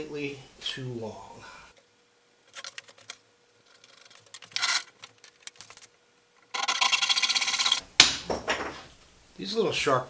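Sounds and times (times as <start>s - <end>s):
saw rattling: 6.5s - 7.8s.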